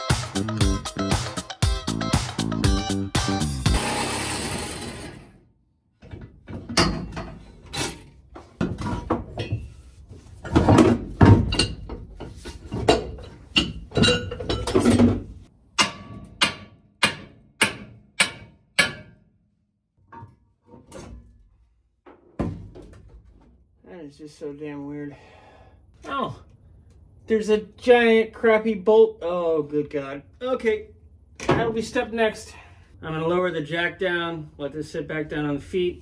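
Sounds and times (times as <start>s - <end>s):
angle grinder cutting: 3.6s - 5.4s
clanks and thuds of steel: 6.0s - 9.7s, 10.4s - 19.3s, 20.0s - 23.4s.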